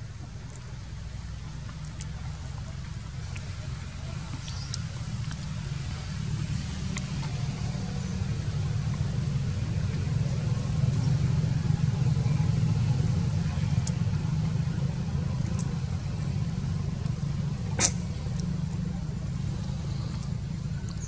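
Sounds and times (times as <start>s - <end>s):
low rumble: 0.0s - 21.0s
faint ticks: 0.3s - 8.2s, 15.3s - 16.4s, 17.0s - 21.0s
sharp click: 17.8s - 18.5s.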